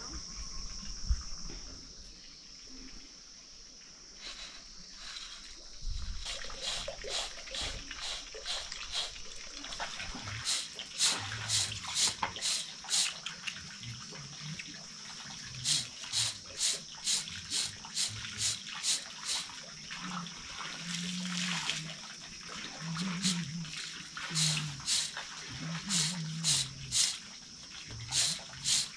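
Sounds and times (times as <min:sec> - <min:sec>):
steady high hiss: 0:00.0 - 0:13.4, 0:15.4 - 0:19.8, 0:22.9 - 0:28.9
scraping strokes on ground: 0:04.2 - 0:13.2, 0:15.6 - 0:19.5, 0:23.0 - 0:23.5, 0:24.3 - 0:25.2, 0:25.8 - 0:27.2, 0:28.0 - 0:28.9.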